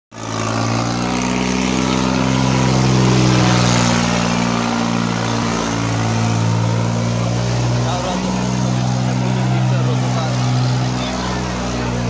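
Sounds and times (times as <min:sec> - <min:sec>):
tractor diesel engine running: 0:00.1 - 0:12.0.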